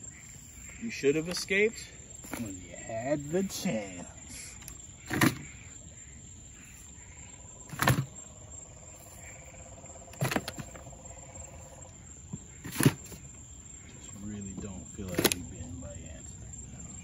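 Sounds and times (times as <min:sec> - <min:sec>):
bodies thudding into plastic bucket: 0:02.2 - 0:02.6, 0:05.0 - 0:05.5, 0:07.7 - 0:08.1, 0:10.1 - 0:10.9, 0:12.6 - 0:13.2.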